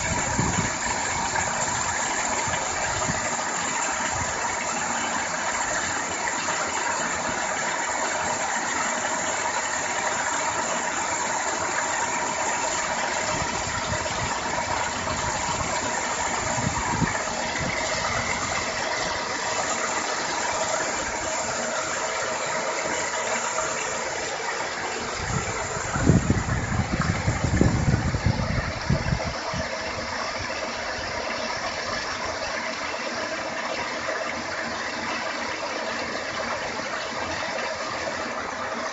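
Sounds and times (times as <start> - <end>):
paddle wheel splashing water: 0.0 - 38.9.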